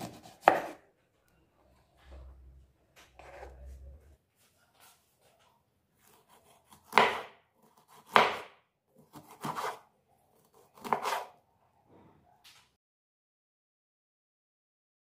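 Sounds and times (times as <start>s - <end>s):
knife cutting on cutting board: 0.0s - 0.8s, 3.2s - 3.6s, 6.0s - 11.4s.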